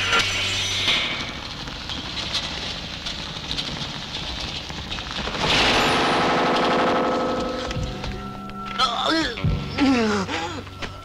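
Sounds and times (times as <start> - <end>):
fire crackling and popping: 0.1 - 8.8.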